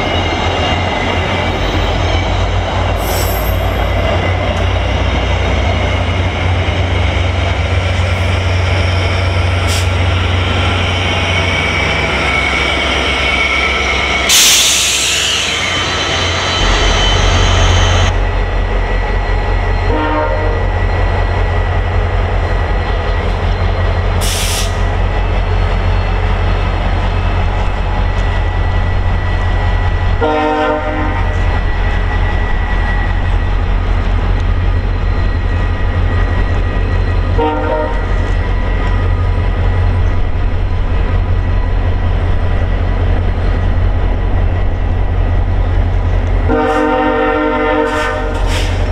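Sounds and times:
diesel locomotive engine drone: 0.0s - 48.9s
train brake squeal: 1.2s - 4.2s, 8.9s - 18.1s, 23.7s - 25.0s, 47.8s - 48.9s
air hiss: 14.3s - 15.7s, 24.2s - 24.8s.

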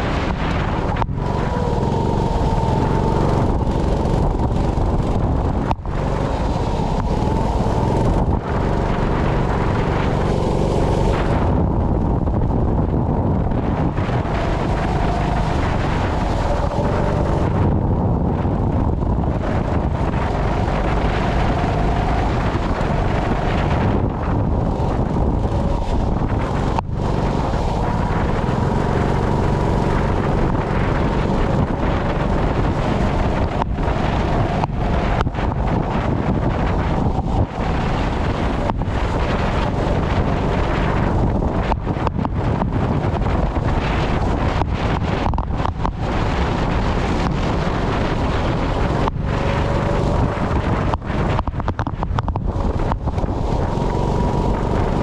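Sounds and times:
go-kart engine running: 0.0s - 55.0s
wind buffeting microphone: 0.0s - 55.0s.

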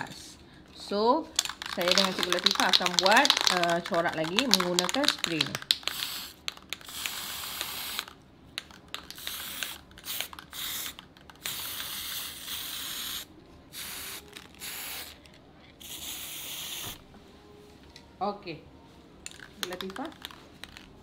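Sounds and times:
spray can hissing: 1.5s - 8.1s, 9.0s - 15.2s, 15.8s - 17.0s.

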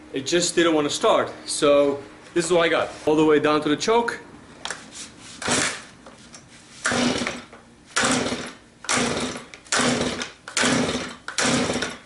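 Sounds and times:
chainsaw starter cord pulls: 5.4s - 5.9s, 6.8s - 12.0s.

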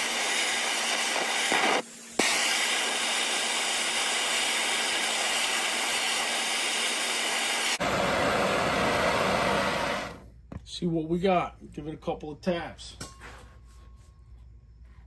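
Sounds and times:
gas torch flame hissing: 0.0s - 10.2s.

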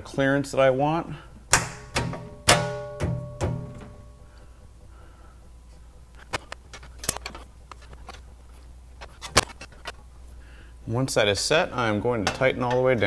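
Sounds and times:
plucked low string notes: 1.7s - 4.1s.

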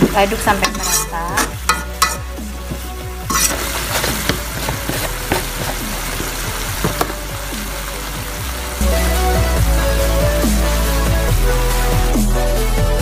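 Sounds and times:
leaves sizzling in pan: 0.0s - 12.4s
metal ladle scraping wok: 0.4s - 7.2s.

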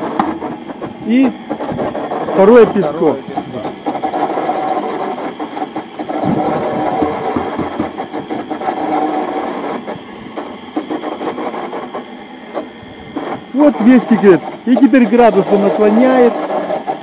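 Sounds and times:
mortar rattling in drum: 0.0s - 12.0s
concrete mixer whining: 0.0s - 17.0s.

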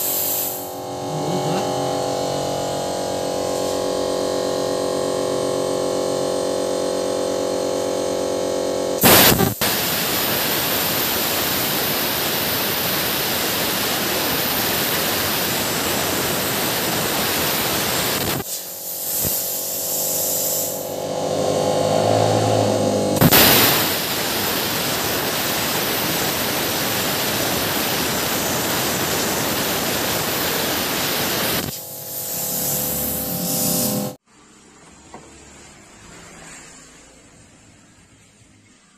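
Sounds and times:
plasma cutter hissing: 0.0s - 2.6s, 9.0s - 21.2s, 23.1s - 34.2s
buzzing hum: 0.0s - 34.2s
plasma arc striking crack: 9.0s - 21.0s, 23.2s - 34.2s.

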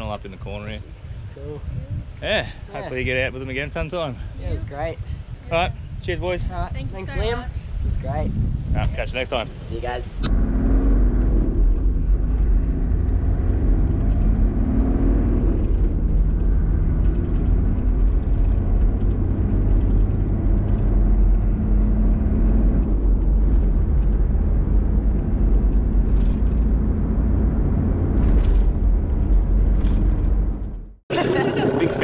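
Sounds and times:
engine and road rumble in cabin: 9.8s - 32.0s.

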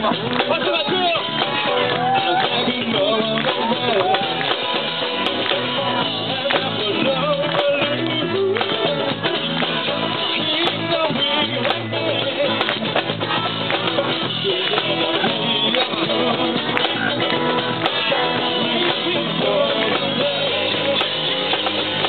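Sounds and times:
live rock band playing: 0.0s - 22.0s.

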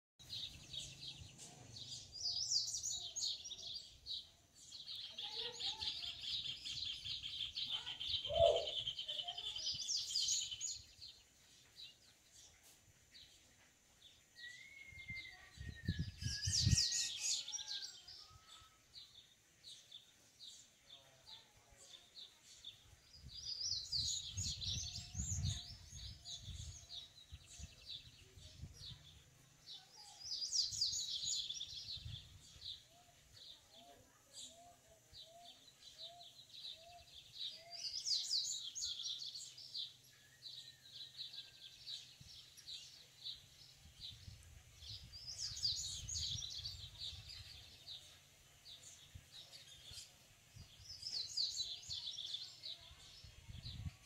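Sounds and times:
bird twittering song: 0.2s - 54.0s
wind rumble on microphone: 15.1s - 16.9s, 24.2s - 29.0s, 53.2s - 54.0s.

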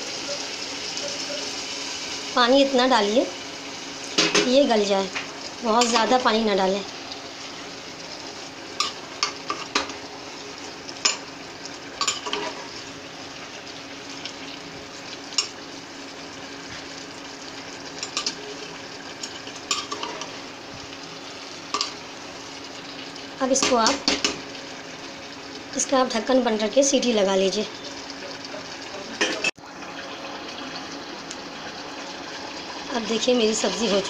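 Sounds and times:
vegetables sizzling: 0.0s - 34.0s.

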